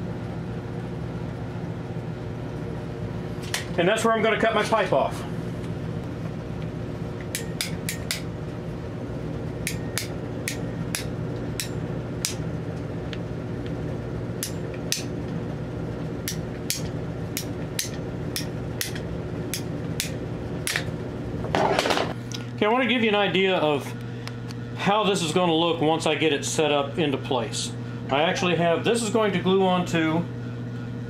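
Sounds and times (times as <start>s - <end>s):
steady low hum: 0.0s - 31.0s
pipe cutter ratchet clicking: 7.3s - 8.3s, 9.6s - 12.4s, 14.4s - 15.1s, 16.2s - 20.8s.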